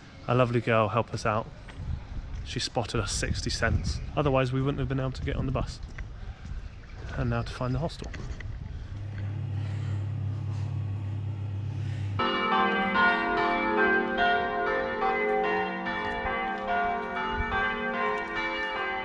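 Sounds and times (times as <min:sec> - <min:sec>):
steady low hum: 0:07.4 - 0:19.0
church bells ringing: 0:09.0 - 0:19.0.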